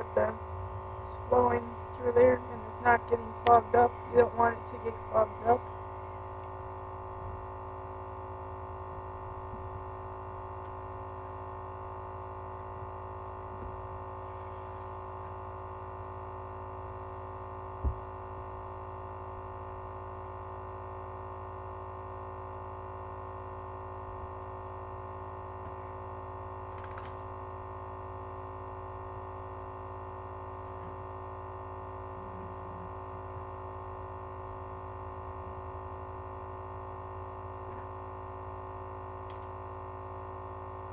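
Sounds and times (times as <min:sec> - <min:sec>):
air compressor humming: 0:00.0 - 0:11.0.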